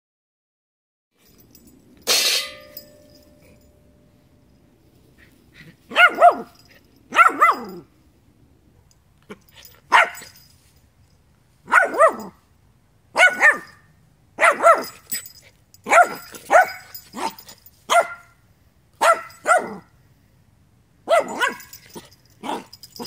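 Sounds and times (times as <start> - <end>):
puppy barking: 5.9 - 7.9, 9.9 - 10.4, 11.7 - 12.4, 13.2 - 13.8, 14.4 - 15.0, 15.8 - 18.4, 19.0 - 19.9, 21.0 - 23.0.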